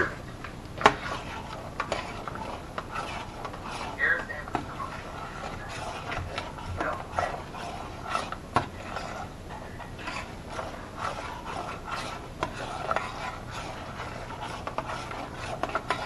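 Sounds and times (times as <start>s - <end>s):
spoon scraping saucepan: 0.8s - 16.0s.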